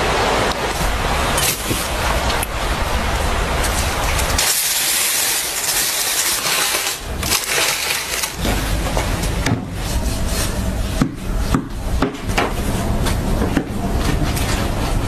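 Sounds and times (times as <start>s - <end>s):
aluminium foil crinkling: 3.6s - 8.4s.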